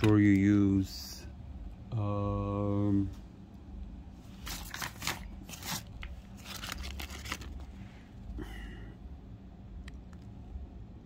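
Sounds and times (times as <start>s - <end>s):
low steady hum: 0.0s - 11.0s
plastic bag crinkling: 4.4s - 7.8s.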